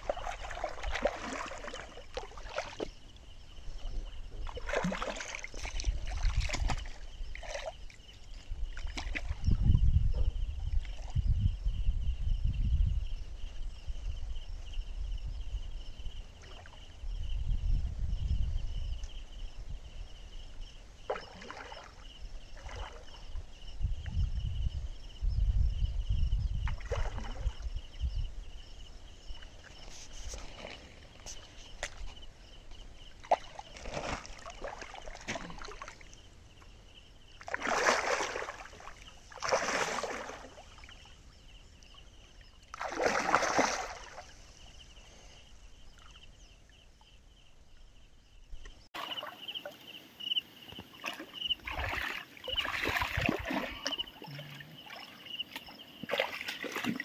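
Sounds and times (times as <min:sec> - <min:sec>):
fish splashing in water: 0:00.0 - 0:02.9, 0:04.4 - 0:07.8, 0:21.1 - 0:22.0, 0:33.2 - 0:36.1, 0:37.4 - 0:41.0, 0:42.7 - 0:44.4, 0:51.0 - 0:57.0.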